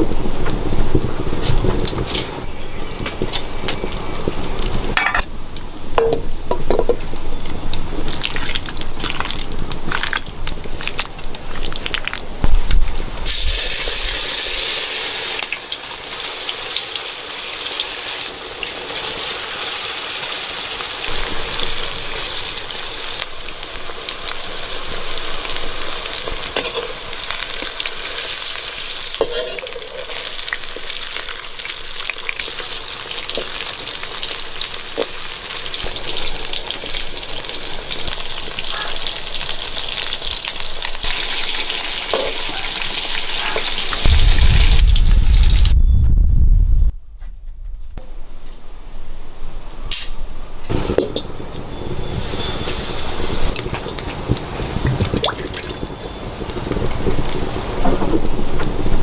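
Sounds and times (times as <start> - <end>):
food sizzling in oil: 12.8 - 45.8, 51.7 - 59.0.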